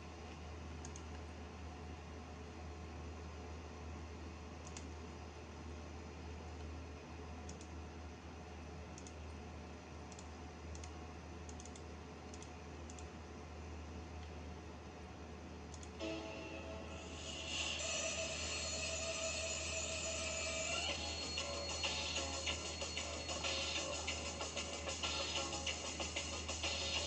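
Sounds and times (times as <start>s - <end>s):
steady low hum: 0.0s - 27.0s
computer mouse clicks: 0.8s - 1.2s, 4.6s - 5.0s, 7.5s - 7.8s, 8.9s - 9.2s, 10.1s - 13.1s, 15.7s - 16.0s.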